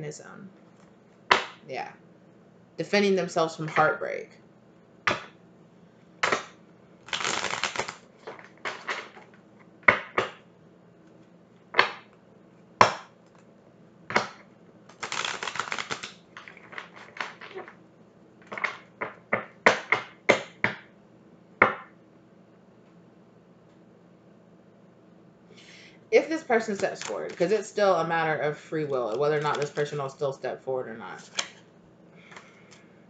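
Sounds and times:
cards slapping and clicking: 6.2s - 9.3s, 14.1s - 17.8s, 26.6s - 27.6s, 29.0s - 30.0s, 31.2s - 31.6s
cards rustling while shuffled: 7.1s - 9.3s, 14.9s - 17.8s, 26.6s - 27.7s, 28.8s - 30.1s, 31.2s - 31.6s.

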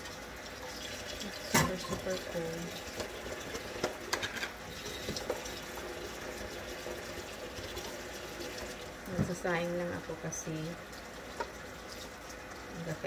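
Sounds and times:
tap running into sink: 1.3s - 2.2s, 2.9s - 5.6s
dishes clinking: 1.5s - 2.1s.

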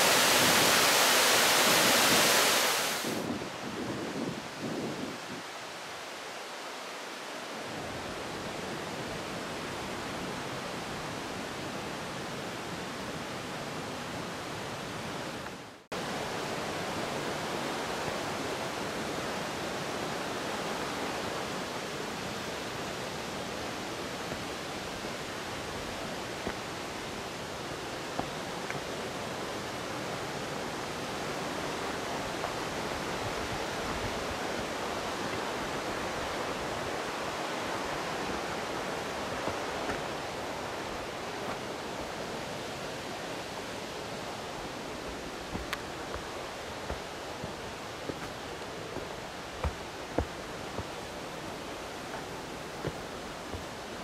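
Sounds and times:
waterfall rushing: 0.0s - 3.3s, 15.9s - 54.0s.

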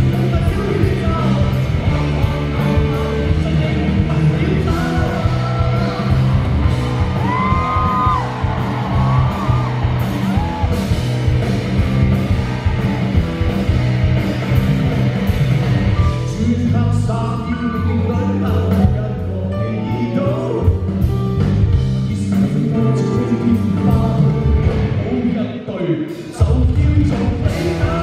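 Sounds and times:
live rock band playing: 0.0s - 28.0s
voices whooping and singing: 4.7s - 11.1s.

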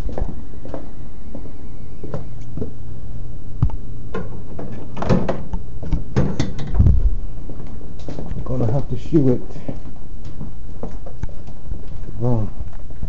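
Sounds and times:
handling knocks and clatter: 4.1s - 7.0s.

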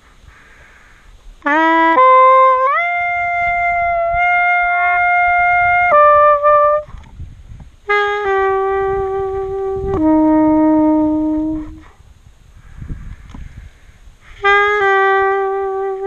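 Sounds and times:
brass wind instrument long notes: 1.4s - 7.0s, 7.9s - 12.0s, 14.2s - 16.0s.

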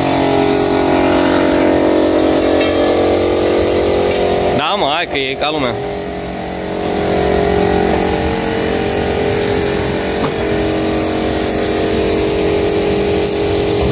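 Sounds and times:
spray rig motor humming: 0.0s - 13.9s
air hiss: 6.7s - 13.9s.

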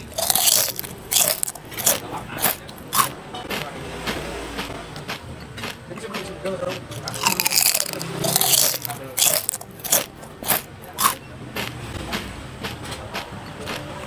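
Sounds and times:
close chewing with wet mouth smacks: 0.0s - 3.1s, 6.9s - 11.2s.

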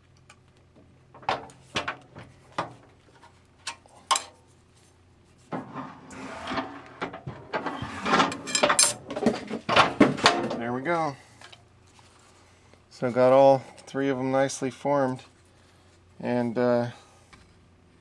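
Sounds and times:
metal sheet rubbing and scraping: 5.4s - 9.5s.

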